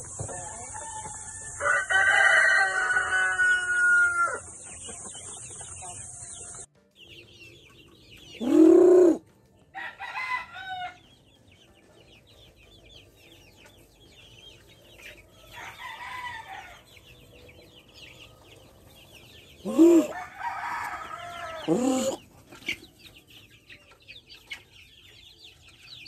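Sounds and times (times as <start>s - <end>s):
chicks peeping: 0.0s - 26.0s
chicken calling: 0.8s - 5.0s, 8.4s - 9.2s, 19.6s - 22.3s.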